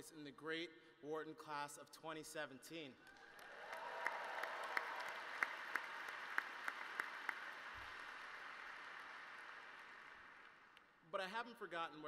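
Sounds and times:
large audience applauding: 0:03.0 - 0:10.8.

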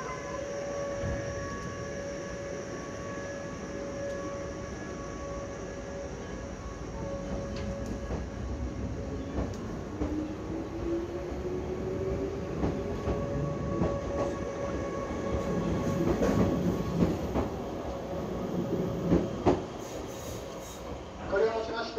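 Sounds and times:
electric train motor whine: 0:00.0 - 0:16.8
train rumble: 0:00.0 - 0:21.9.

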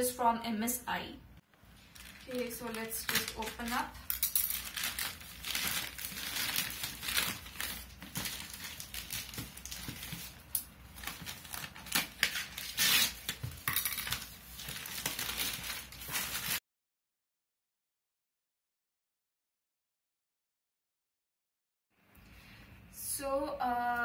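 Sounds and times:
plastic mailer bag crinkling: 0:01.8 - 0:16.6.

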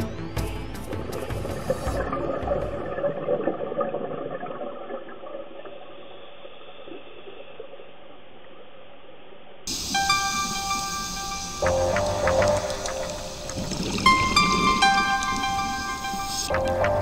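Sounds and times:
faint steady hiss: 0:05.4 - 0:16.7
droning music notes: 0:09.7 - 0:17.0.

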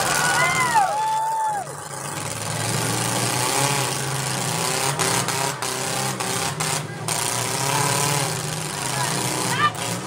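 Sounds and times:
car engines revving: 0:00.0 - 0:10.0.

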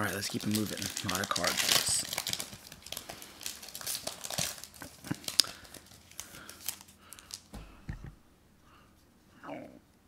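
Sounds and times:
wrapper crinkling: 0:00.0 - 0:07.9
cards tapping on tabletop: 0:07.6 - 0:08.2.

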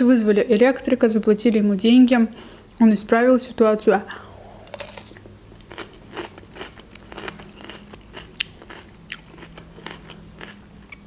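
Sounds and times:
biting into crisp vegetable: 0:04.6 - 0:11.0
wet chewing with crunchy clicks: 0:04.7 - 0:11.0.

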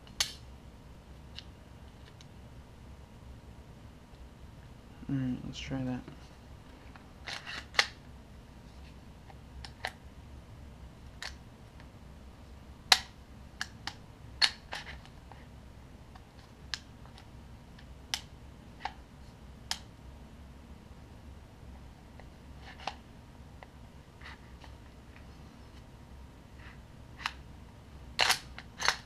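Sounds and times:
gun parts clicking and snapping: 0:28.2 - 0:29.0.

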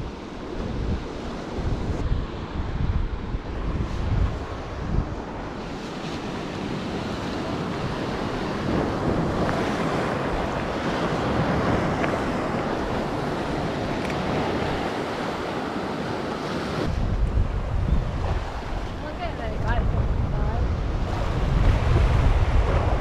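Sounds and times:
sea waves washing in: 0:00.0 - 0:23.0
wind blowing on microphone: 0:00.0 - 0:23.0.

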